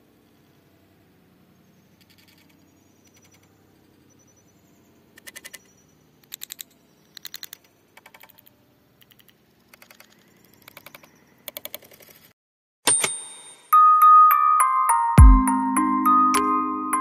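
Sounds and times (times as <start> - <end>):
bright chime: 12.9 - 17.0
glockenspiel-like music tune: 12.9 - 17.0.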